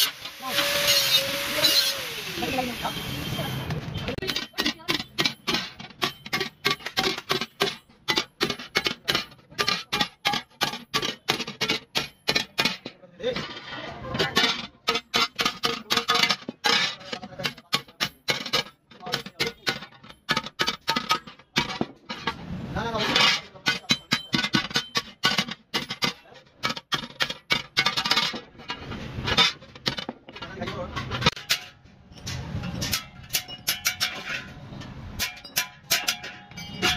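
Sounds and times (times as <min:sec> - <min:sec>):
hammer striking steel plate: 0:04.1 - 0:13.0, 0:14.2 - 0:22.4, 0:23.0 - 0:36.9.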